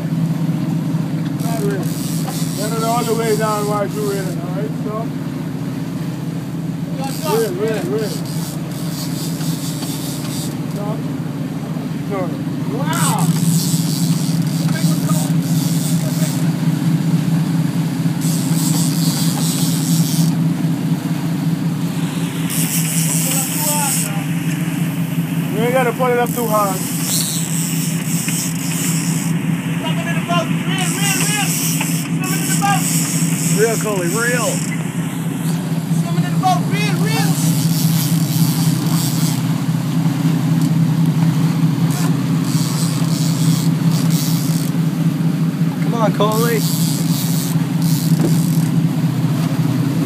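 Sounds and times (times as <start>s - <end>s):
boat engine drone: 0.0s - 50.0s
wake and spray rushing: 12.6s - 26.0s.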